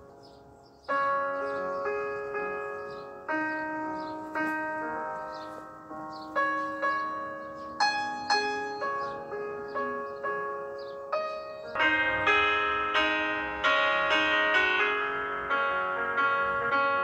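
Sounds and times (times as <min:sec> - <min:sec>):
slow chiming instrumental music: 0:00.0 - 0:17.0.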